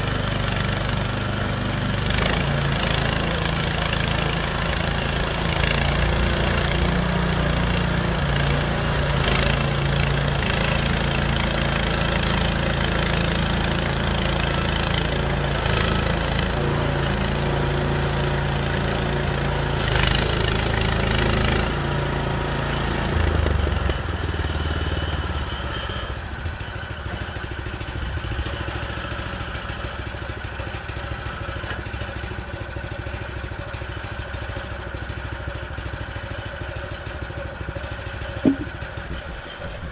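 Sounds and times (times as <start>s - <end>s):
small gasoline engine running: 0.0s - 39.9s
saw blade cutting log hiss: 1.9s - 22.0s.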